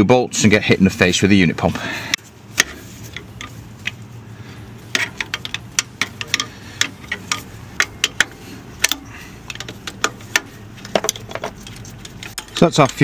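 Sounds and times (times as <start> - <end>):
low steady hum: 0.0 - 13.0
ratchet spanner clicking: 4.9 - 13.0.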